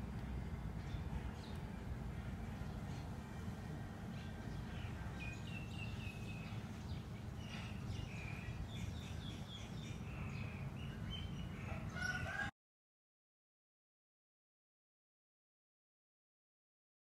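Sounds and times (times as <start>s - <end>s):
steady low rumble: 0.0s - 11.8s
birds chirping: 0.8s - 12.5s.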